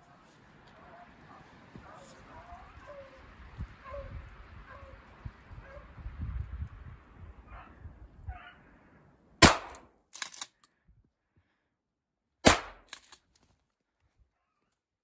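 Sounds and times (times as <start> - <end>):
gunshots: 9.4 - 9.9, 12.4 - 13.1.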